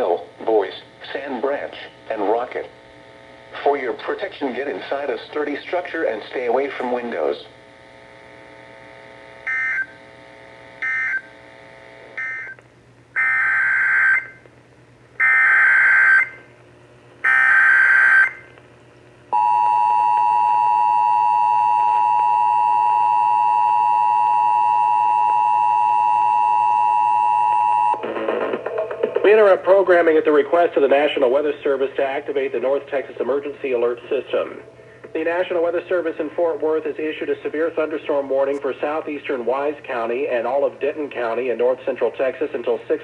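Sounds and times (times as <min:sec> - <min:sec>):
two-tone attention signal: 0:09.4 - 0:10.0, 0:10.8 - 0:11.3, 0:12.2 - 0:12.6, 0:19.4 - 0:29.1.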